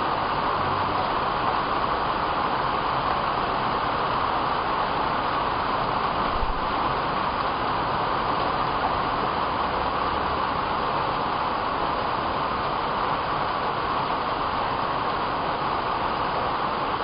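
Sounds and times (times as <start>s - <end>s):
steady background hiss: 0.0s - 17.0s.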